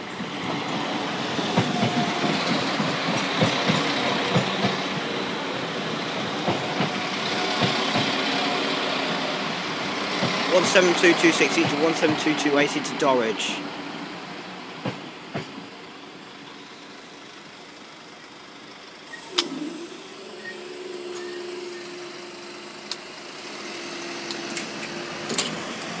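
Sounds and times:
train clicks: 0.0 - 8.6, 9.5 - 13.1, 14.8 - 15.7, 24.2 - 26.0
train passing: 0.0 - 26.0.

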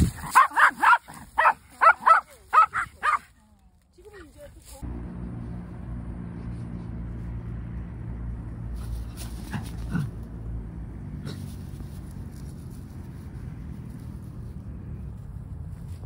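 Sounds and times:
steady low rumble: 4.8 - 16.0.

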